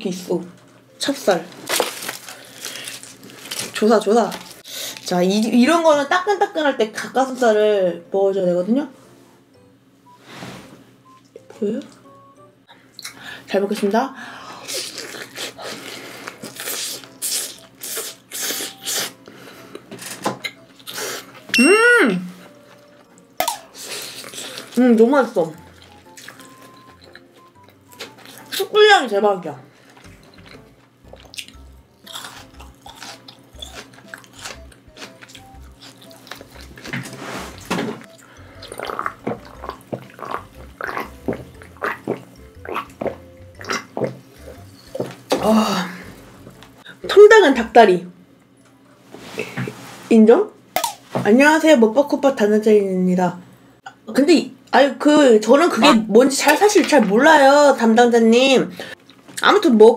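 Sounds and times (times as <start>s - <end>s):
close chewing and crunching: 1.5s - 5.1s, 14.6s - 19.8s, 20.4s - 21.4s, 22.6s - 28.7s, 29.8s - 46.9s
person gulping a drink: 38.6s - 44.2s.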